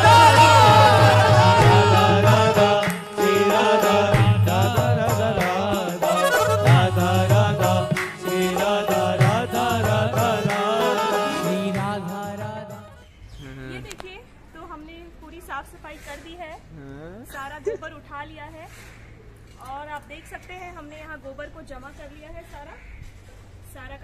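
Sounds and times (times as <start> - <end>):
percussion strikes: 0.0 - 12.9
ornamented melody with sliding notes: 6.0 - 12.2.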